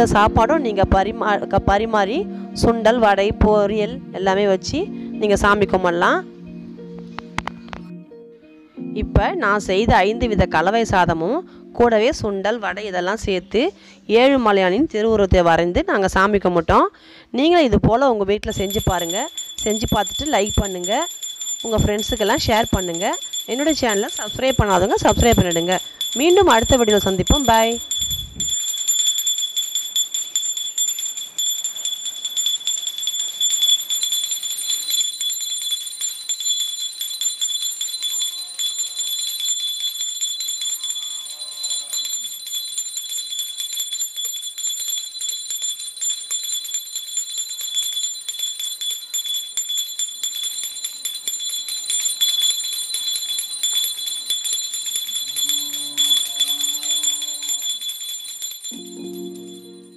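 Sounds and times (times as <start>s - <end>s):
hand bell ringing: 18.5s - 59.9s.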